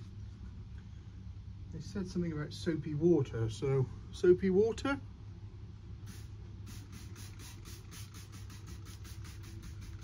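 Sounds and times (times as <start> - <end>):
low steady hum: 0.0 - 10.0
spray bottle squirts: 6.1 - 10.0.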